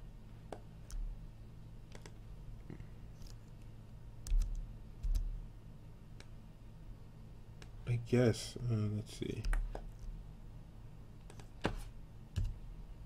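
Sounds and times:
faint low hum: 0.0 - 13.0
mouse and keyboard clicks: 1.9 - 2.2, 11.2 - 11.5.

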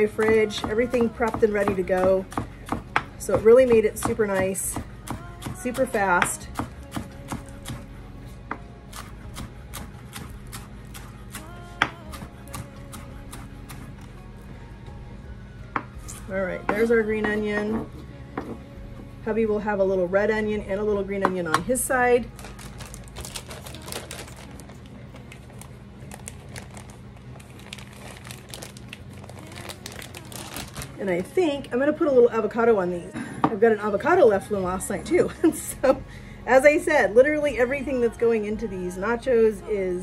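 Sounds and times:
low steady hum: 0.0 - 40.0
plastic bag crinkling: 22.3 - 31.0.

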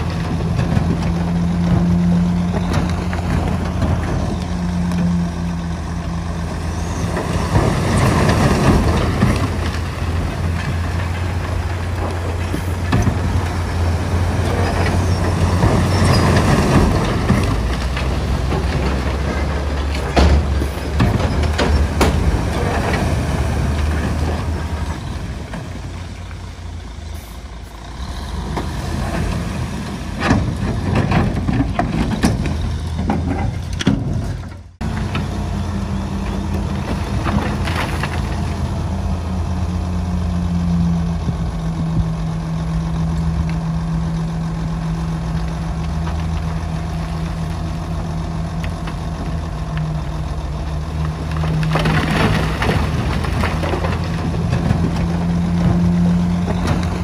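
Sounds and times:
heavy diesel machinery running: 0.0 - 57.0
knocks and clanks: 7.0 - 25.8, 30.1 - 35.3.

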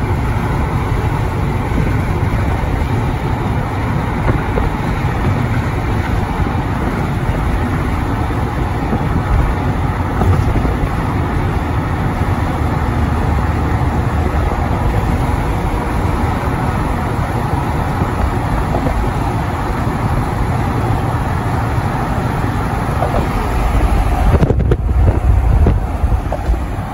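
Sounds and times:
tyre and engine rumble: 0.0 - 26.9.

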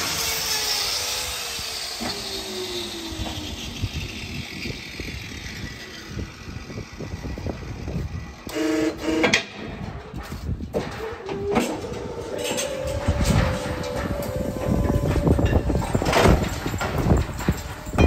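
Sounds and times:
buzzing hum: 0.0 - 18.0
metal clanking and knocking: 9.1 - 18.0
steady hum: 11.6 - 18.0.

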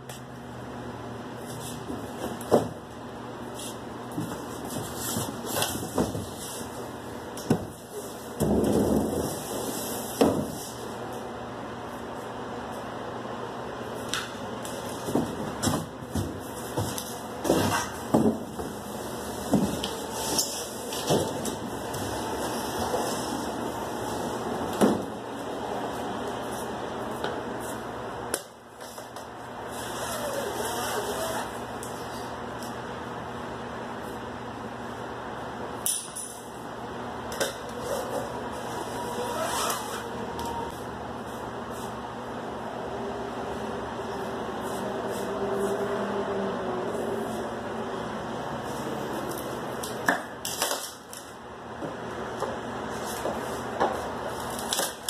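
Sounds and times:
steady background hum: 0.0 - 55.0.

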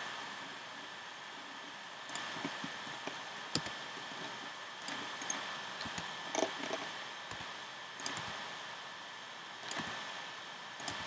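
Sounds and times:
steady background hiss: 0.0 - 11.0
mouse and keyboard clicks: 2.1 - 2.7, 3.6 - 3.8, 4.8 - 8.3, 9.6 - 10.0, 10.8 - 11.0.

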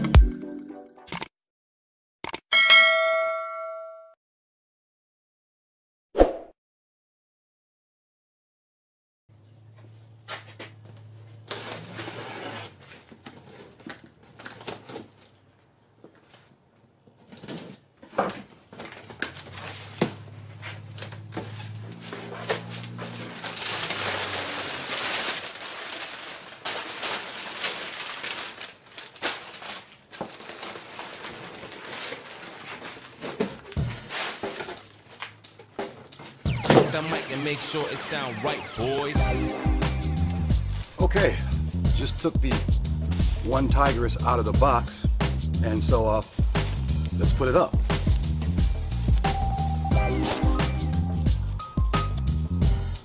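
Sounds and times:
packing paper rustling and crinkling: 11.4 - 16.6, 17.2 - 37.8, 46.0 - 49.3.

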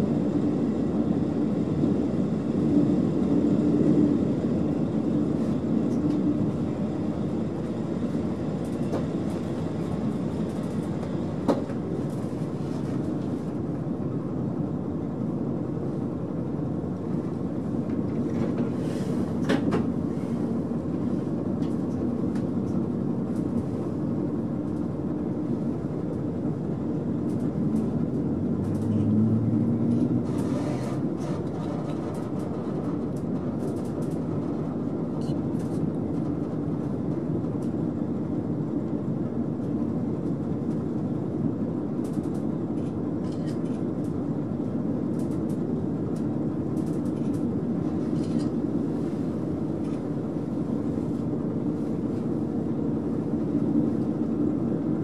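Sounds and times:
train wheels rumbling on rail: 0.0 - 55.0
diesel engine drone: 26.9 - 35.6.

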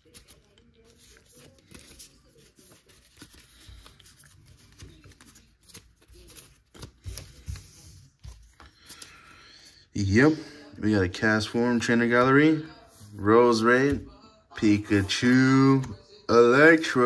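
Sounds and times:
trading cards rustling and clicking: 0.0 - 9.4.

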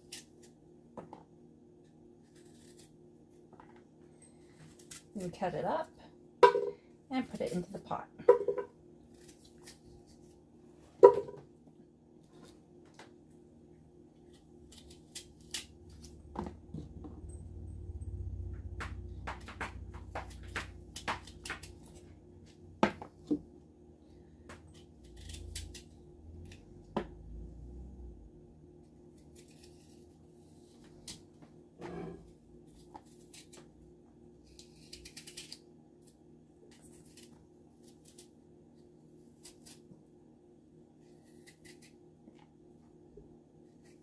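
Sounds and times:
faint steady hum: 0.0 - 44.0
knife cutting apple: 2.2 - 3.0, 8.3 - 10.4, 14.2 - 16.2, 24.5 - 27.1, 29.1 - 31.2, 34.4 - 38.4, 39.4 - 39.9, 41.0 - 42.0.

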